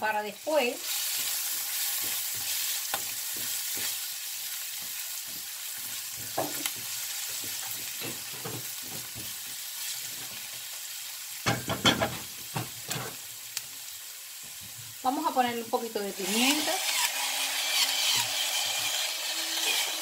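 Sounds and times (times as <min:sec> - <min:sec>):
herbs and onion sizzling in oil: 0:00.0 - 0:20.0
spatula knocking against pan: 0:06.1 - 0:09.5, 0:11.4 - 0:12.8.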